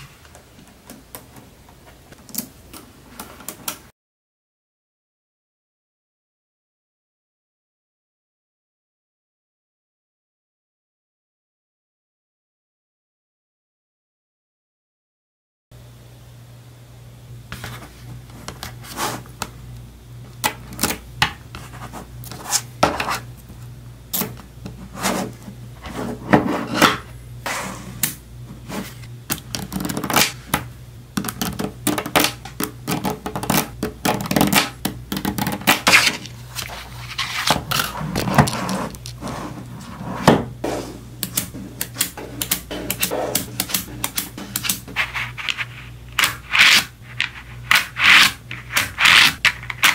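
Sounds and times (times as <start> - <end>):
low steady hum: 15.8 - 49.9.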